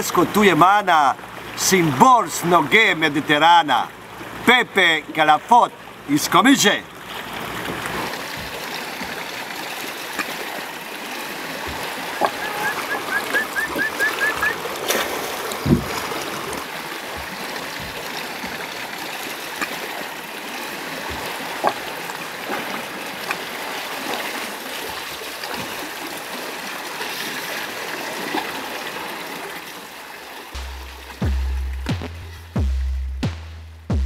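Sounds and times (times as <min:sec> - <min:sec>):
wash of sea water: 0:00.0 - 0:32.6
water trickling into sea: 0:06.9 - 0:31.2
small clicks and splashes: 0:07.0 - 0:11.0, 0:11.6 - 0:26.3
soft thump: 0:15.6 - 0:16.1.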